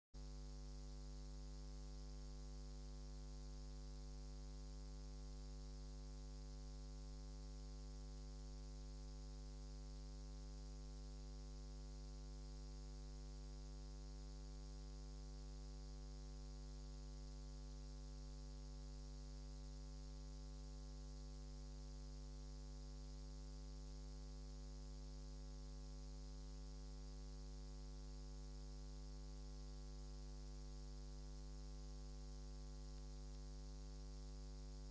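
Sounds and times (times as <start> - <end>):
electrical mains hum: 0.2 - 34.9.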